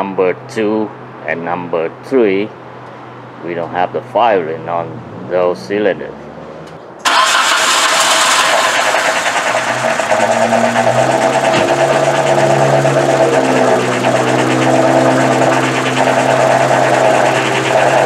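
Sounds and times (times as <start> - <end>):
car engine running rough: 6.2 - 18.0.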